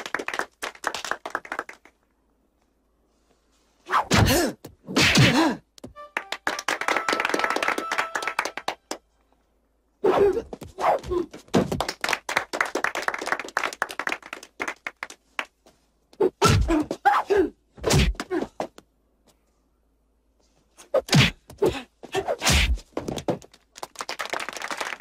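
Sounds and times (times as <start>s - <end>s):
dense clapping patter: 0.0s - 2.1s, 6.1s - 9.0s, 11.7s - 15.7s, 23.1s - 25.0s.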